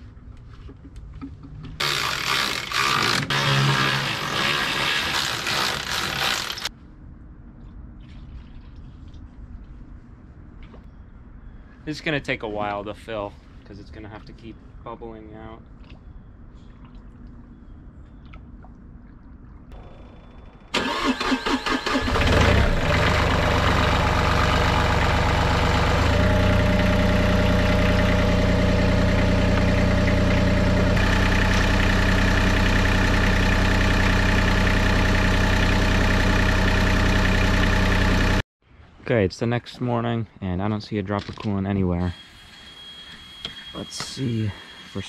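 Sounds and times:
diesel engine running: 0:19.8 - 0:38.4
engine starter cranking: 0:20.6 - 0:23.6.

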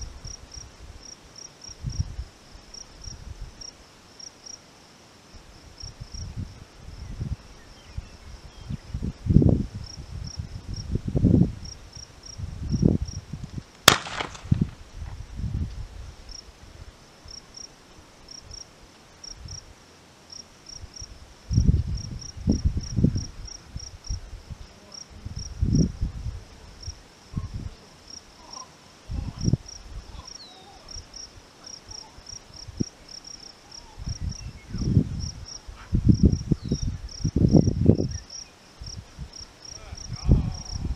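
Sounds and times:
wind buffeting microphone: 0:01.8 - 0:02.3, 0:05.7 - 0:16.9, 0:20.8 - 0:27.8, 0:29.1 - 0:30.3, 0:33.8 - 0:40.9
distant shotgun shot: 0:13.8 - 0:14.8
insects trilling: 0:16.3 - 0:19.7, 0:20.3 - 0:40.9.

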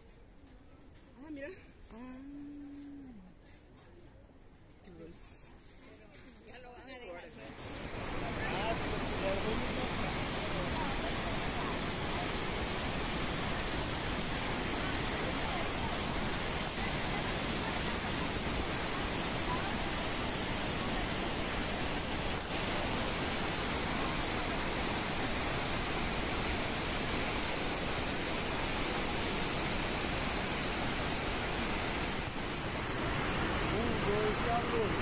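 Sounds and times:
waterfall rushing: 0:07.6 - 0:35.0.

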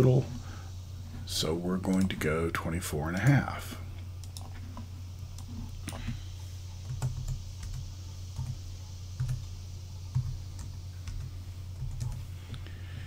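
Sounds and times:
steady low hum: 0:00.0 - 0:13.0
computer keyboard keystrokes: 0:04.2 - 0:04.5.

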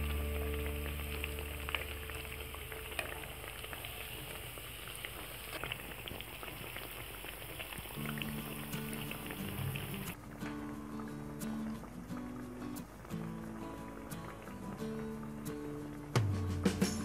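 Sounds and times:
fritters sizzling in hot oil: 0:00.0 - 0:10.3.

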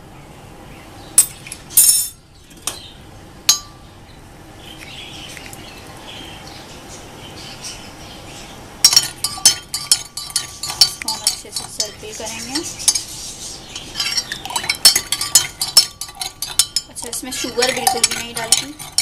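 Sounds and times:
metal spoon clinking against jug: 0:08.8 - 0:13.1, 0:13.8 - 0:19.0.

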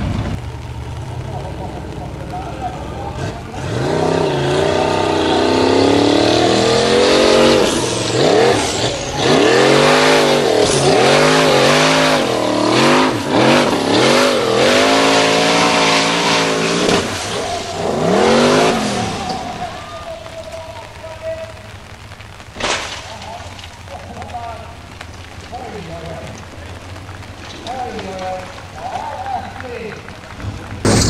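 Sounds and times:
buggy engine at high revs: 0:00.0 - 0:19.8
wheels spinning on gravel: 0:00.0 - 0:31.0.

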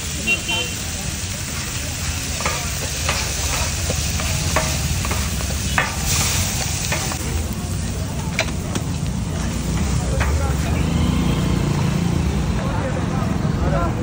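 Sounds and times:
chicken sizzling on a griddle: 0:00.0 - 0:13.0
metal spatula clinking and scraping: 0:02.3 - 0:07.4, 0:09.4 - 0:10.8.

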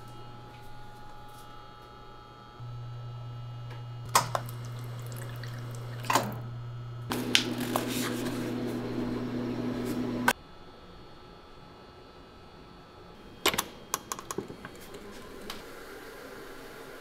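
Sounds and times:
steady low hum: 0:00.0 - 0:17.0
water running into paper cup: 0:04.1 - 0:06.4, 0:07.1 - 0:09.2.

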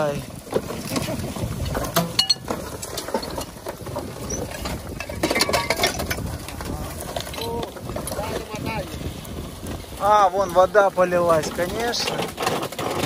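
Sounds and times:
metal parts clinking and rattling: 0:01.6 - 0:03.6, 0:04.3 - 0:06.3.

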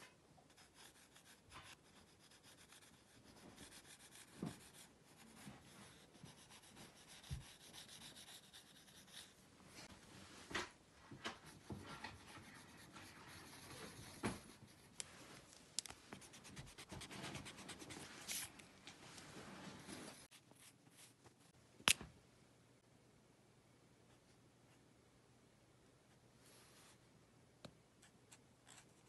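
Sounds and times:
pencil scratching on paper: 0:00.5 - 0:09.4, 0:11.3 - 0:15.0, 0:16.2 - 0:18.5.

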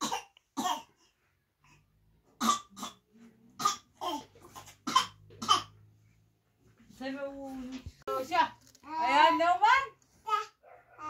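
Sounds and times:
woman coughing: 0:04.6 - 0:05.7.

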